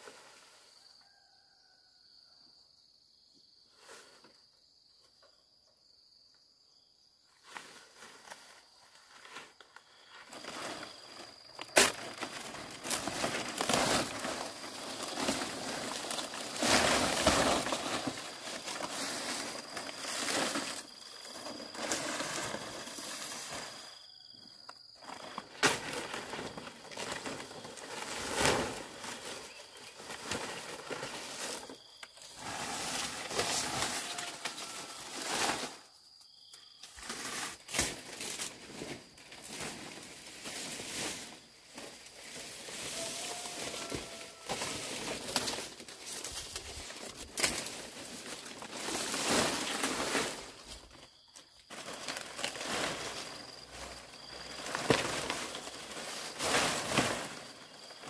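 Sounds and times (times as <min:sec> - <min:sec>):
rustling and crackling of handling: 0:07.8 - 0:23.8, 0:36.8 - 0:58.0.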